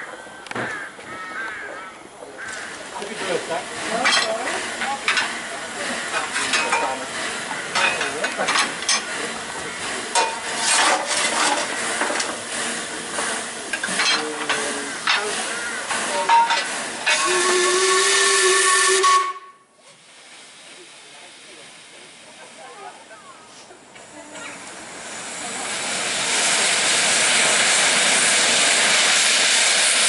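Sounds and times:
steam locomotive hissing: 2.4 - 30.0
steam whistle: 17.0 - 19.7.

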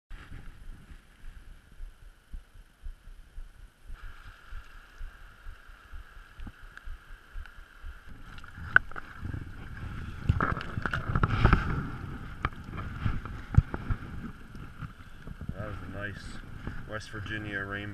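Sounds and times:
wind buffeting the microphone: 0.1 - 17.9
water splashing: 3.9 - 15.7.

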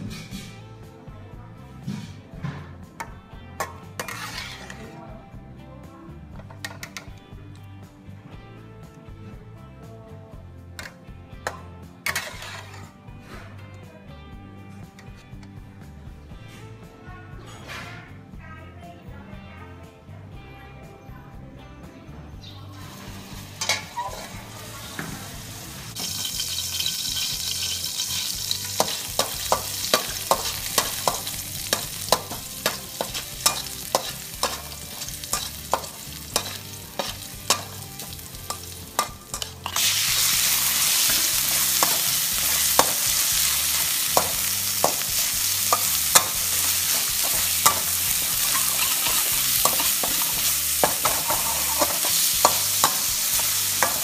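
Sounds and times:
sizzling in oil: 3.6 - 4.8, 12.1 - 12.9, 22.8 - 54.0
metal utensil scraping wok: 3.6 - 5.0, 12.1 - 13.4, 22.8 - 54.0
meat sizzling loudly: 4.0 - 4.8, 22.9 - 54.0.

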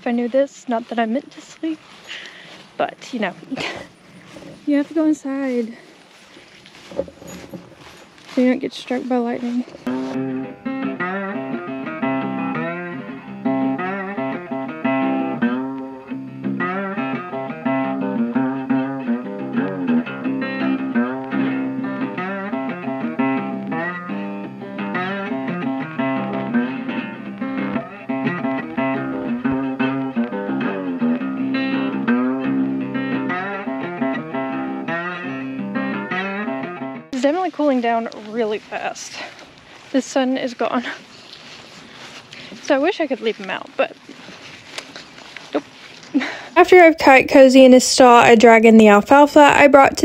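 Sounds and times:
plucked and strummed guitar music: 7.8 - 38.2.

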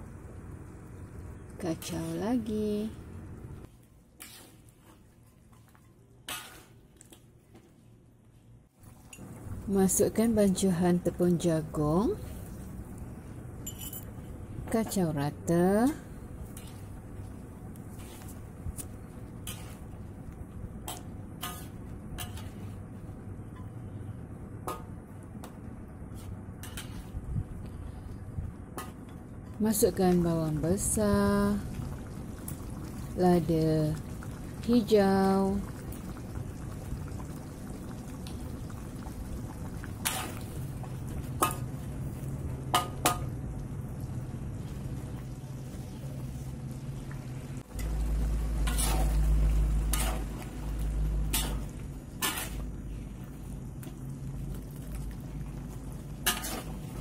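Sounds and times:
metal spatula scraping wok: 4.2 - 4.8, 6.2 - 6.8, 19.3 - 20.0, 20.9 - 22.8, 26.1 - 27.2, 40.0 - 40.5, 48.5 - 50.4, 51.1 - 52.8, 56.2 - 57.0
steady low hum: 8.0 - 57.0
metal clinking against wok: 13.6 - 14.1
sauce bubbling: 29.9 - 57.0.

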